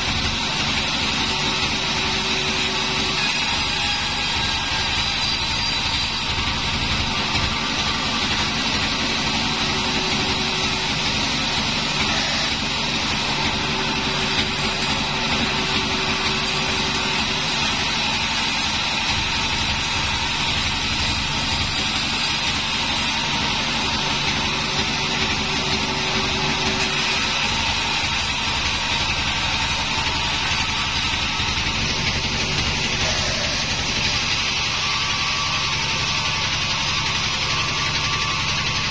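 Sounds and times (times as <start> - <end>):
band saw cutting wood: 0.0 - 38.9.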